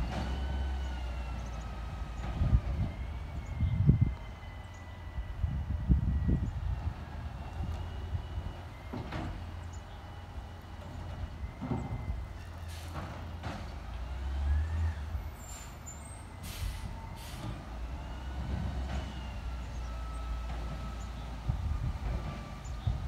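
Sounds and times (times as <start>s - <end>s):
garbage truck diesel engine: 0.0s - 23.0s
short air hisses: 16.4s - 17.5s.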